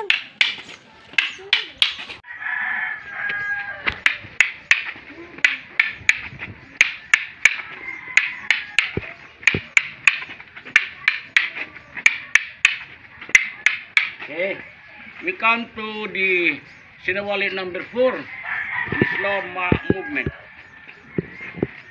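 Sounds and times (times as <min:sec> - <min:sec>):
wooden sticks clacking together: 0:00.0 - 0:02.2, 0:03.9 - 0:14.3.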